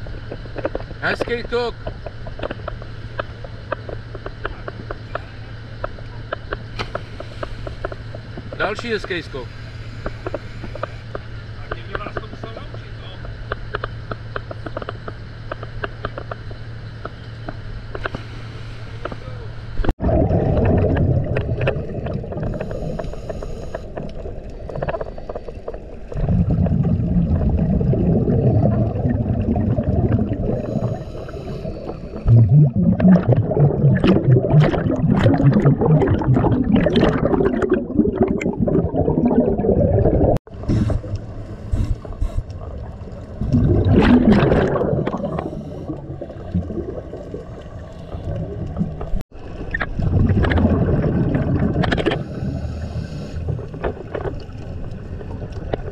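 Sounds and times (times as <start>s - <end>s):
underwater bubbles gurgling: 19.8s - 55.9s.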